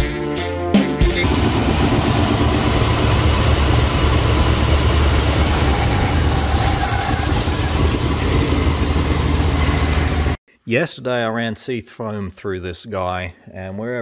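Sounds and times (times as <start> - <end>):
car engine idling: 1.2 - 10.4.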